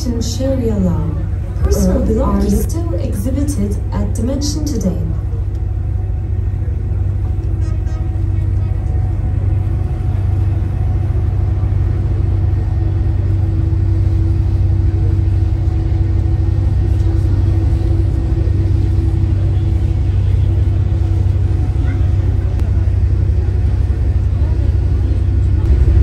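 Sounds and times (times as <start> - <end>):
boat engine droning: 0.0 - 26.0
constant hum: 0.0 - 26.0.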